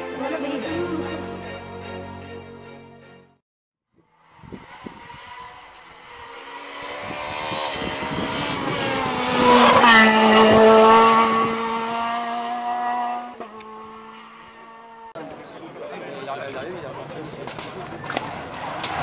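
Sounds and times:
rally car engine at full throttle: 4.0s - 15.8s, 16.4s - 19.0s.

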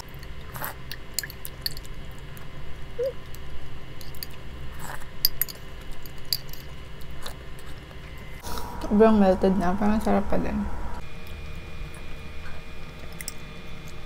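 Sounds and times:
mouth sounds of eating: 2.9s - 3.3s.

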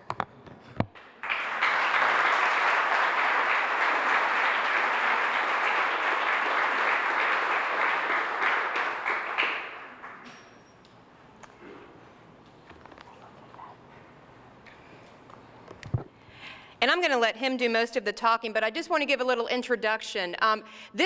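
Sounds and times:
audience applauding: 1.0s - 10.3s.

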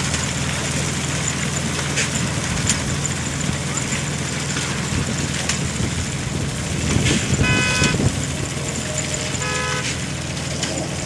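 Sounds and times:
tractor engine running: 0.0s - 11.0s
short horn-like toots: 7.4s - 8.0s, 9.4s - 10.0s.

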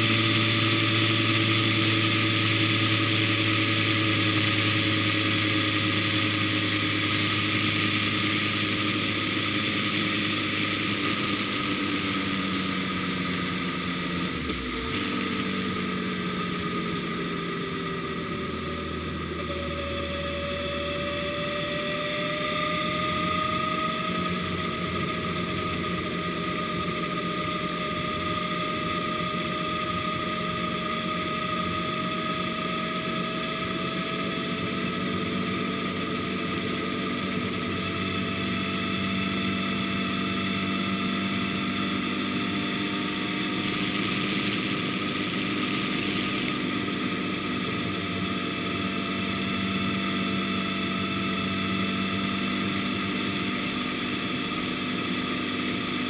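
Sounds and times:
wind and road noise hiss: 0.0s - 15.7s, 43.6s - 46.6s
car engine: 0.0s - 19.3s, 43.6s - 46.6s.

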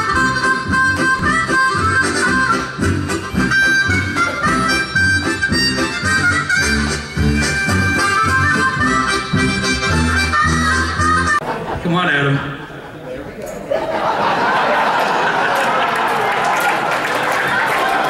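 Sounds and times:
harmonica-led music: 0.0s - 11.4s
rhythmic bass line: 0.0s - 11.4s.

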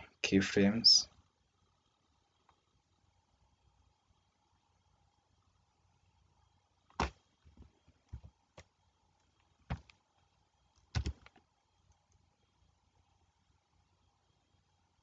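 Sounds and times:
mouse and keyboard clicks: 10.8s - 12.1s.

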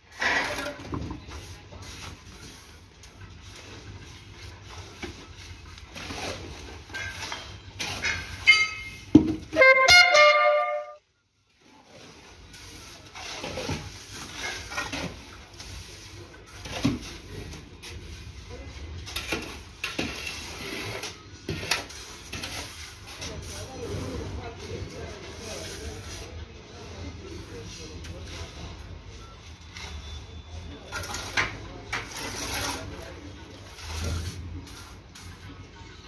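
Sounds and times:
brass-like blare: 9.6s - 11.0s.

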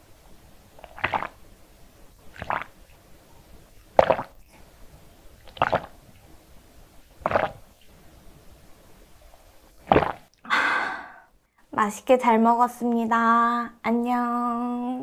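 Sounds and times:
person gulping a drink: 0.8s - 1.4s, 2.3s - 2.8s, 3.8s - 4.6s, 5.4s - 6.0s, 7.2s - 7.7s, 9.8s - 10.6s.

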